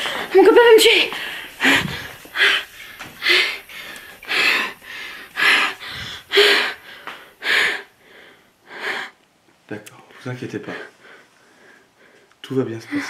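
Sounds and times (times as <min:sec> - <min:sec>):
woman gasping breaths: 0:01.1 - 0:09.2.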